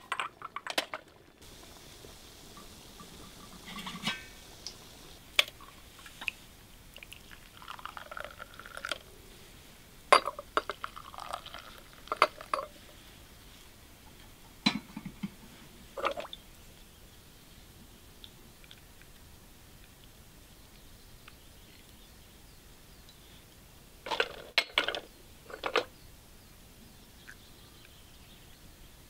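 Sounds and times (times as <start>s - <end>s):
tea pouring into glasses: 0.3s - 9.2s, 10.1s - 13.0s
glass and china clinking: 2.6s - 4.7s, 10.1s - 12.8s.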